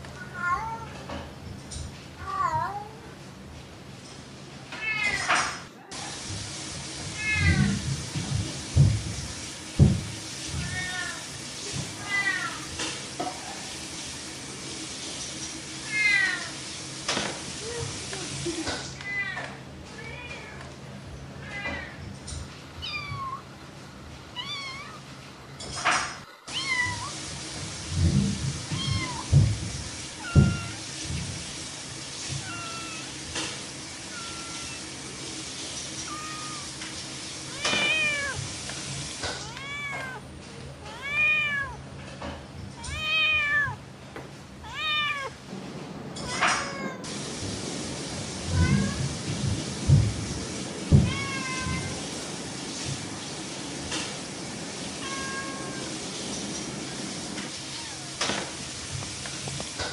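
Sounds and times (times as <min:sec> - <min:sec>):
cat meowing: 0:00.2 - 0:01.0, 0:07.2 - 0:07.8, 0:22.8 - 0:23.5, 0:24.4 - 0:25.1, 0:26.5 - 0:27.2, 0:30.2 - 0:30.9, 0:32.4 - 0:33.2, 0:34.0 - 0:34.9, 0:36.0 - 0:36.8, 0:37.5 - 0:38.4, 0:39.4 - 0:41.8, 0:42.8 - 0:43.8, 0:44.6 - 0:45.4, 0:46.2 - 0:47.1, 0:51.0 - 0:52.0, 0:55.0 - 0:55.8, 0:57.7 - 0:58.2.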